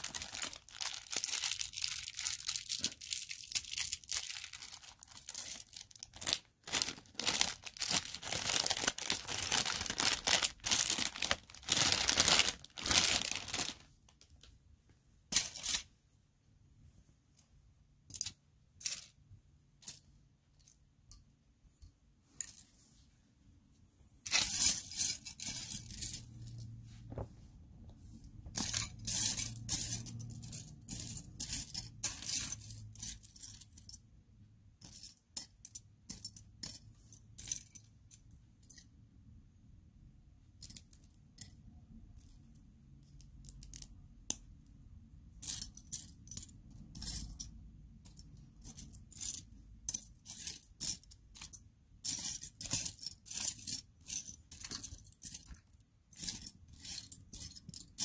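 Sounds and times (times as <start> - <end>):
plastic pieces clattering: 0.0 - 14.4.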